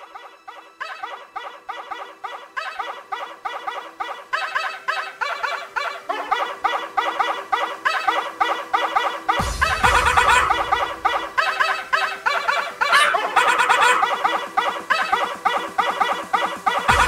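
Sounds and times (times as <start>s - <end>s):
pitched dog bark melody: 9.4s - 14.3s.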